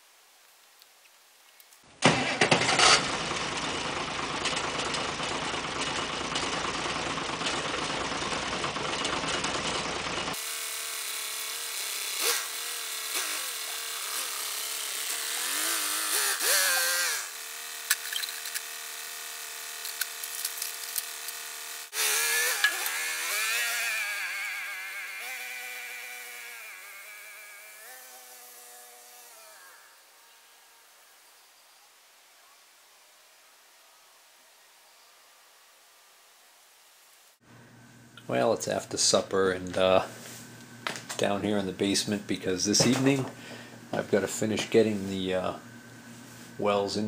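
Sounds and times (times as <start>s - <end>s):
tractor engine revving: 2.0s - 30.0s.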